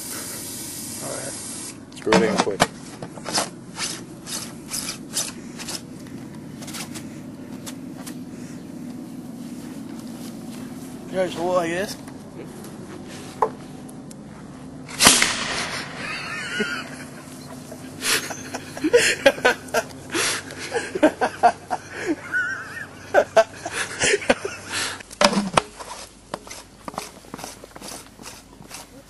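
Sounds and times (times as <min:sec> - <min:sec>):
potato cannon bang: 0:14.9 - 0:16.1.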